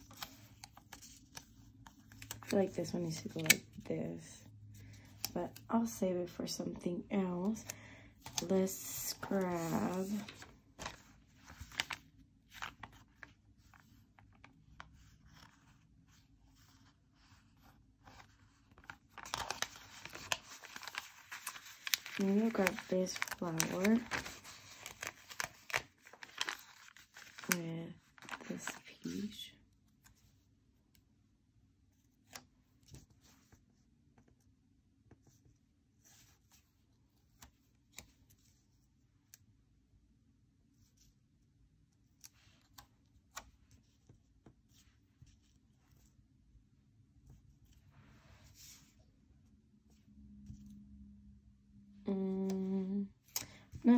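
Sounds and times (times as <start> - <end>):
paper sticker sheet rustling: 0.0 - 3.8, 8.2 - 29.3.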